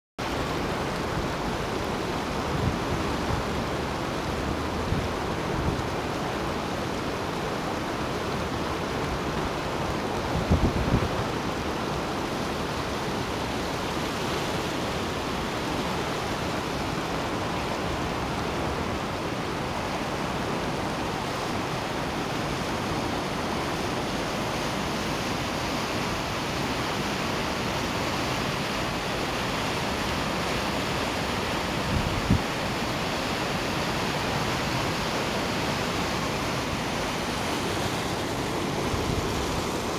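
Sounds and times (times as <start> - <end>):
river rushing: 0.2 - 39.9.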